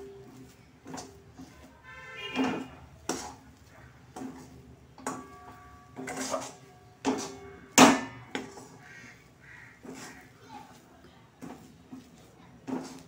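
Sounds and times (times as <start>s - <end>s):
spatula scraping metal pan: 1.4s - 3.5s, 4.2s - 7.6s, 8.2s - 10.3s.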